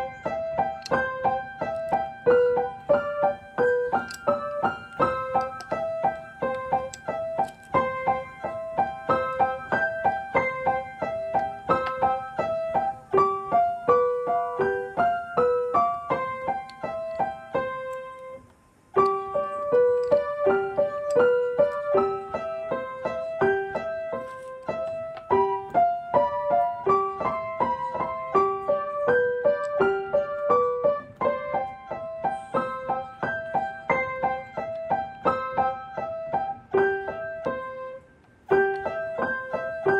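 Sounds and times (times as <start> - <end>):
piano melody: 0.0 - 39.9.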